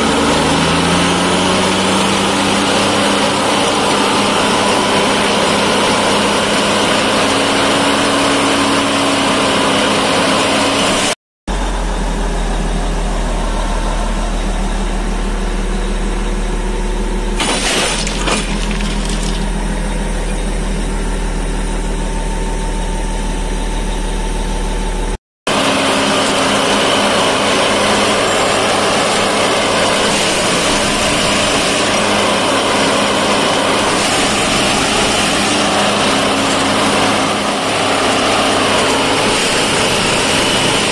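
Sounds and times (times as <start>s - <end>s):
diesel engine and machinery noise: 0.0s - 40.9s
machinery clatter: 17.3s - 21.0s, 25.7s - 40.9s.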